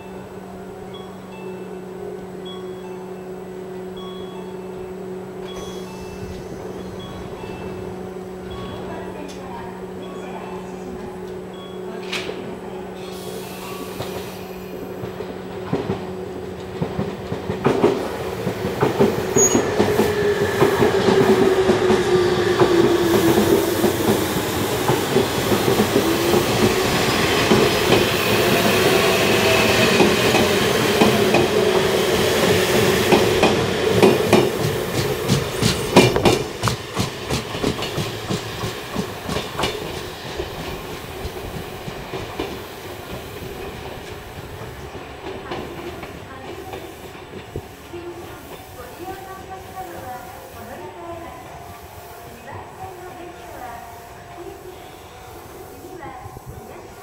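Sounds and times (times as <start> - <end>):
electric train motors whining: 2.4 - 57.0
train wheels clacking over rail joints: 15.0 - 47.8.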